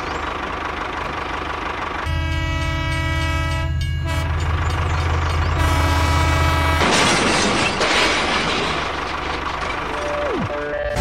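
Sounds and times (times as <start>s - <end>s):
train engine rumble: 0.0s - 11.0s
train horn blowing: 2.0s - 4.5s, 5.5s - 6.8s.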